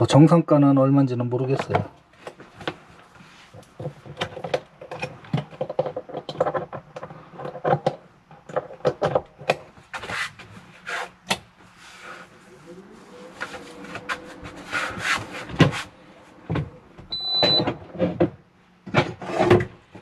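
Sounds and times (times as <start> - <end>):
knocks and rubbing on wooden cabinet: 12.9 - 19.8.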